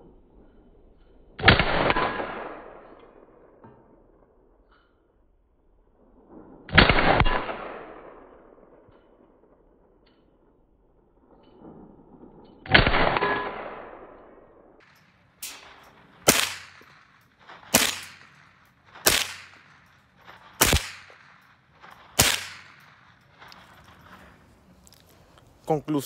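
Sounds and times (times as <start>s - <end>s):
rifle shots echoing: 1.4s - 3.6s, 6.7s - 8.8s, 12.7s - 24.8s.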